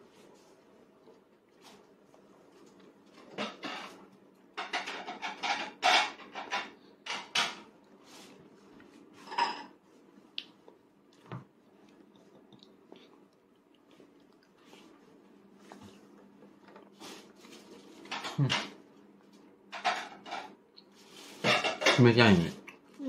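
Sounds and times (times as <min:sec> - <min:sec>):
dishes and cutlery clattering: 0:03.2 - 0:04.0, 0:04.6 - 0:07.7, 0:09.2 - 0:09.8, 0:18.0 - 0:18.8, 0:19.7 - 0:20.6, 0:21.4 - 0:22.3.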